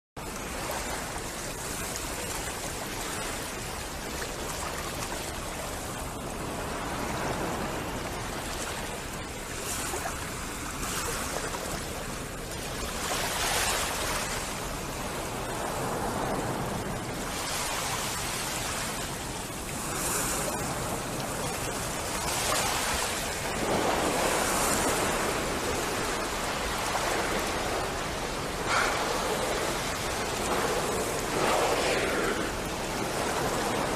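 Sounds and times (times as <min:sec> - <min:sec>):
water rushing: 0:00.2 - 0:33.9
wind rushing: 0:23.4 - 0:33.9.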